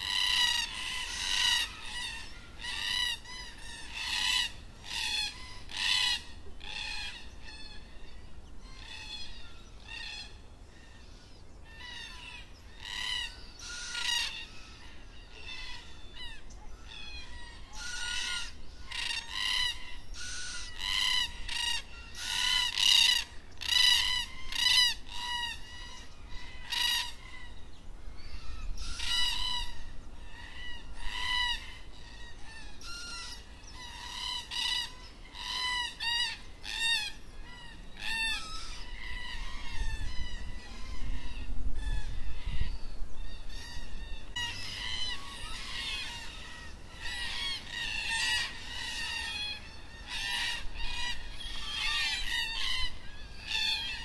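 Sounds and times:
cockatoo harsh wavering calls: 0.0s - 54.0s.

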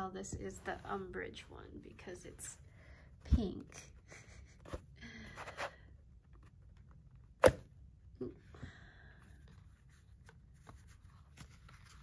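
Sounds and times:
cardboard rustle: 9.6s - 12.0s.

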